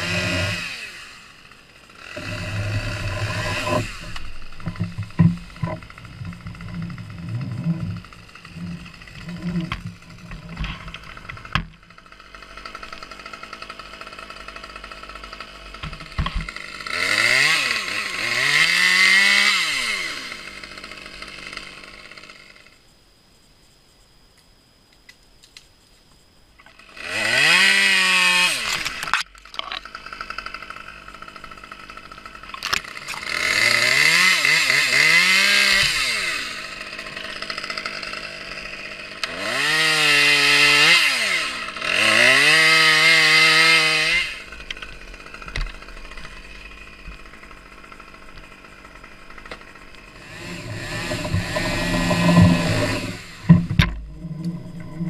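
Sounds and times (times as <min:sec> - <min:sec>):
chainsaw revving: 0:00.0 - 0:22.8, 0:26.7 - 0:55.0.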